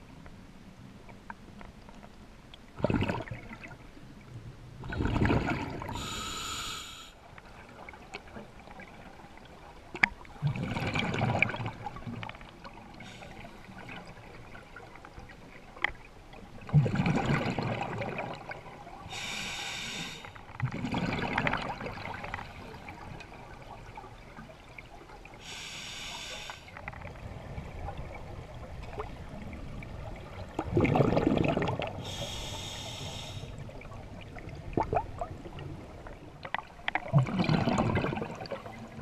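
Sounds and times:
hissing regulator inhale: 5.9 - 7.2, 13.0 - 13.5, 19.1 - 20.4, 25.4 - 26.7, 32.0 - 33.6
bubbly exhales: 30.7 - 33.5.

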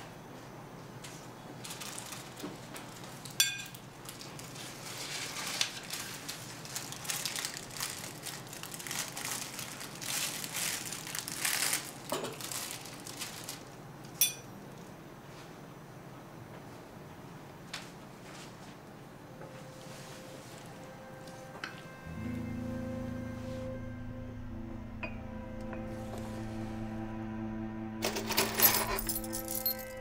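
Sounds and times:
plastic wrap crinkling: 1.6 - 14.2
cutlery clinking against dish: 3.4 - 3.8, 14.2 - 14.5.

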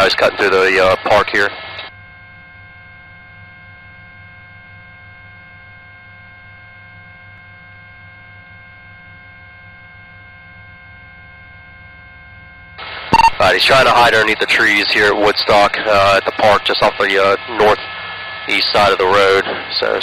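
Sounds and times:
intercom channel hum: 0.0 - 4.1, 12.8 - 20.0.

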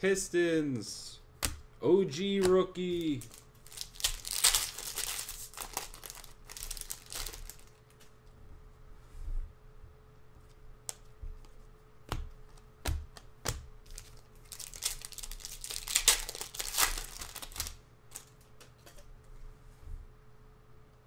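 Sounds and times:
foil card pack crinkling: 2.8 - 8.1, 13.8 - 18.4.

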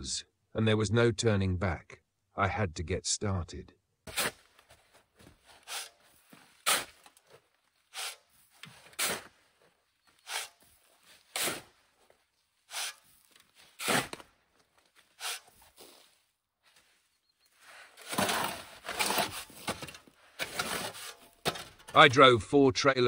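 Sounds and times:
shovel scraping metal: 4.1 - 4.8, 5.4 - 7.3, 7.9 - 9.4, 10.0 - 11.8, 12.7 - 14.3, 15.1 - 15.7, 17.7 - 22.4.

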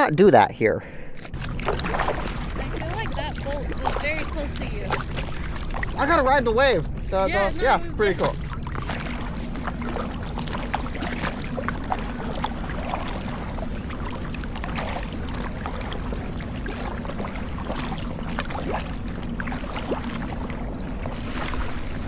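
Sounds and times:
steady low hum: 0.1 - 22.0
water splashing against kayak: 1.2 - 22.0.

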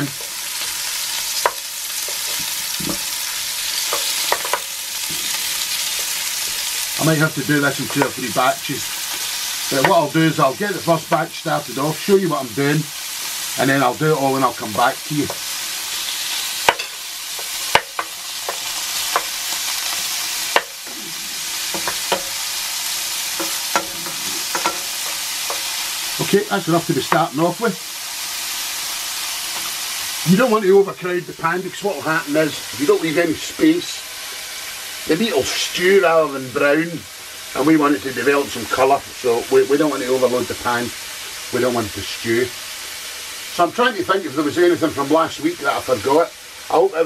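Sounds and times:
meat sizzling in hot oil: 0.0 - 47.0
wooden spatula knocking on pan: 16.7 - 19.3, 21.7 - 22.4, 23.4 - 25.7.

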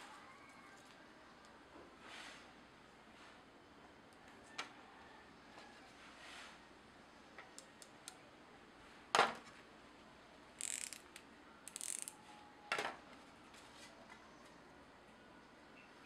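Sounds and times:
utility knife blade ratcheting: 10.6 - 12.2.

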